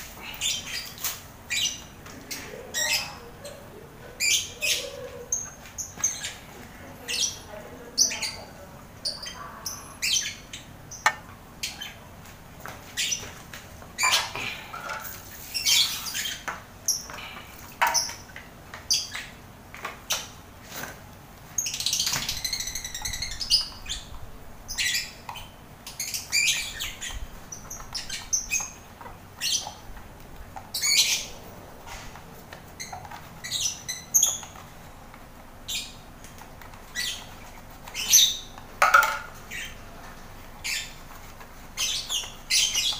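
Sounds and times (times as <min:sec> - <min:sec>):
lovebirds calling: 0:00.0 - 0:12.2, 0:14.0 - 0:19.4, 0:21.5 - 0:30.0, 0:30.7 - 0:31.5, 0:32.7 - 0:34.7, 0:36.9 - 0:40.0, 0:40.6 - 0:42.9.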